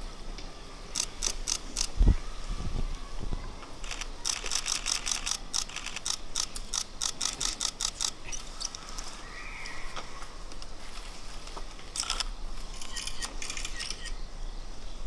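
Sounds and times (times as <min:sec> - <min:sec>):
rapid mechanical clicks: 0:03.8 - 0:08.2.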